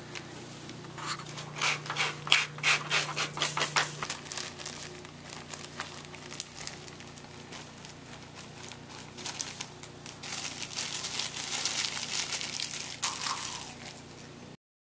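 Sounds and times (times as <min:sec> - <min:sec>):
low steady hum: 0:00.0 - 0:14.6
plastic bag crinkling: 0:03.4 - 0:14.3.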